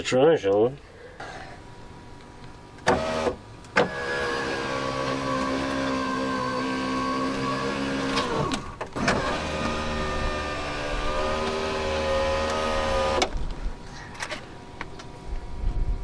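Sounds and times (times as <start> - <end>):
electric window motor whining: 2.8 - 13.4.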